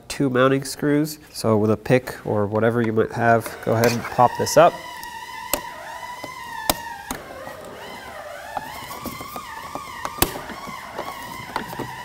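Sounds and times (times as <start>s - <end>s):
metal pick scraping plastic: 2.6s - 12.0s.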